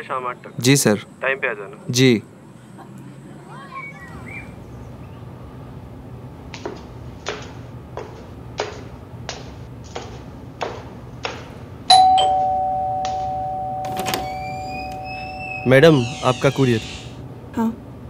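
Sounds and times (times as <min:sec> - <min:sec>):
footsteps climbing stairs: 0:06.5 - 0:16.5
ding-dong doorbell ringing: 0:11.9 - 0:15.4.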